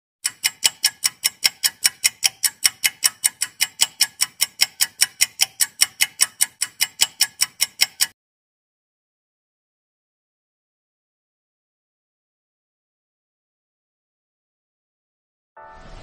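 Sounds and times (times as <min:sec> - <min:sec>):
rapid even ticking: 0:00.2 - 0:08.2.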